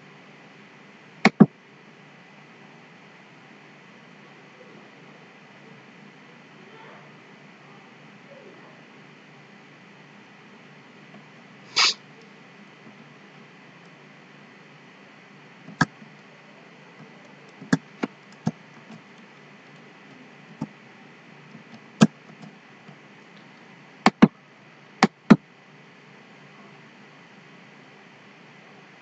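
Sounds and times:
keyboard and mouse clicks: 0:01.3 - 0:01.5, 0:15.7 - 0:16.2, 0:24.1 - 0:24.3.

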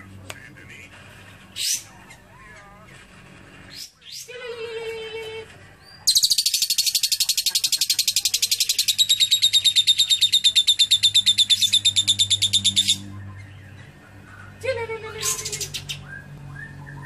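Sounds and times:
lovebird chattering trill: 0:06.1 - 0:13.0.

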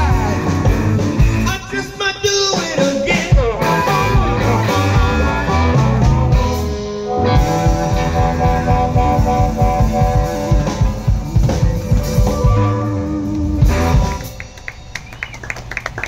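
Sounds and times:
live electric blues band: 0:00.0 - 0:16.0
sustained guitar notes: 0:02.8 - 0:14.6.

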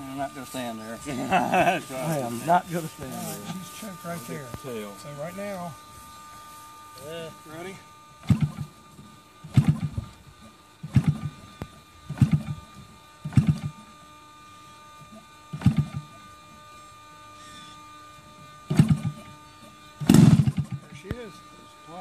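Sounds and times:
model engine firing pops: 0:08.2 - 0:08.7, 0:09.5 - 0:10.0, 0:10.8 - 0:12.6, 0:13.3 - 0:13.8, 0:15.5 - 0:16.1, 0:18.7 - 0:19.2, 0:20.0 - 0:21.2.

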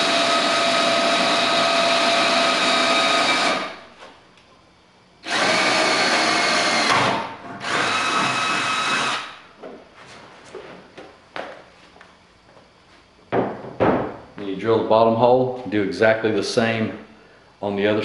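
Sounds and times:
cordless drill whining through metal: 0:00.0 - 0:03.8, 0:05.2 - 0:09.4.

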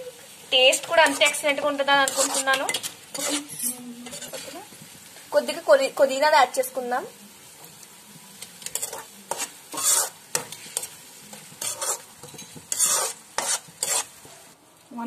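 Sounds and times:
sauce sizzling: 0:00.0 - 0:14.9
metal spoon scraping frying pan: 0:00.7 - 0:04.7, 0:08.6 - 0:14.3.

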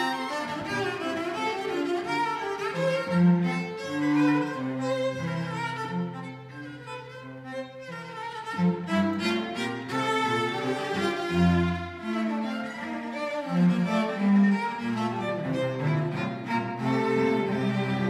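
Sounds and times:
violin playing: 0:00.0 - 0:18.0.

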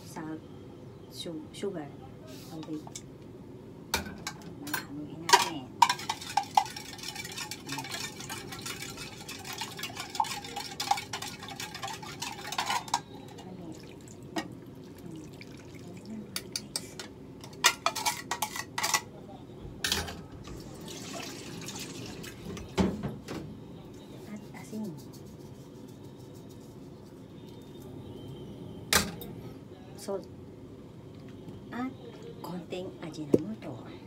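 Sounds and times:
kitchen utensils clinking: 0:04.0 - 0:13.5, 0:16.4 - 0:19.1, 0:19.8 - 0:20.3
spoon stirring liquid: 0:05.3 - 0:18.8.

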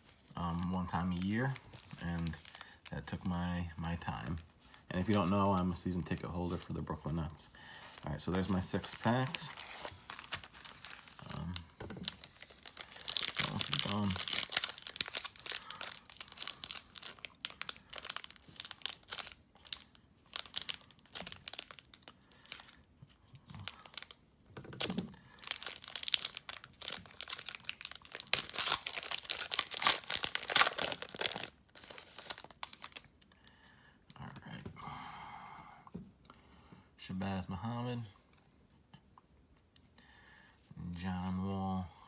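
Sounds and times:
foil wrapper tearing and crinkling: 0:08.4 - 0:22.8, 0:23.6 - 0:33.1.

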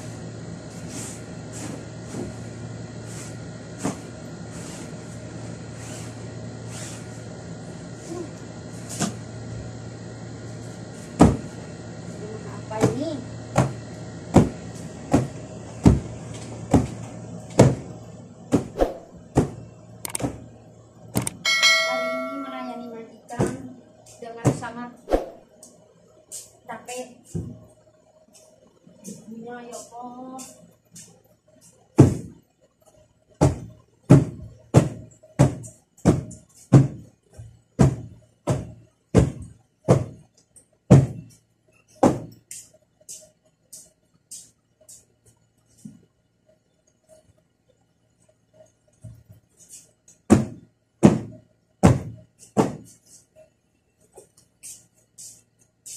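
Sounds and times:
cushion being beaten: 0:33.4 - 0:37.1, 0:37.8 - 0:40.2, 0:42.0 - 0:42.4, 0:50.3 - 0:52.9.

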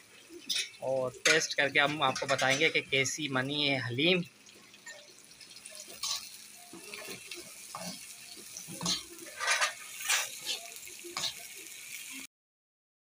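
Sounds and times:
metal spoon scraping steel pot: 0:08.6 - 0:11.4.

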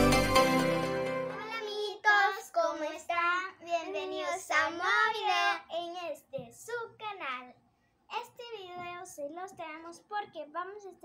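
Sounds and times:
girls singing: 0:01.3 - 0:02.9.

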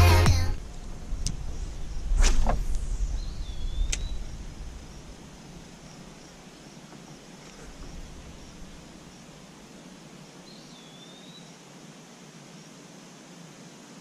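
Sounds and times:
faint outdoor background: 0:00.0 - 0:14.0
fishing line whooshing out: 0:01.9 - 0:04.1.

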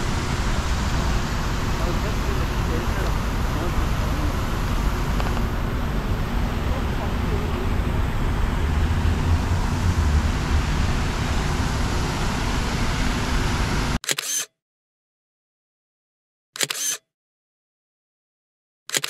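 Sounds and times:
street noise rumble: 0:00.0 - 0:14.0
camera shutter clicks: 0:14.0 - 0:14.5, 0:16.6 - 0:17.0.

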